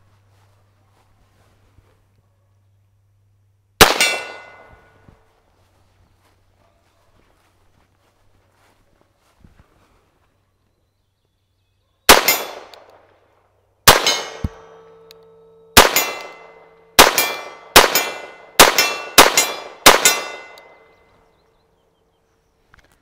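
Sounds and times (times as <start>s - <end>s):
pistol shots with echo: 3.8s - 4.9s, 12.1s - 13.1s, 13.8s - 15.1s, 15.8s - 20.9s.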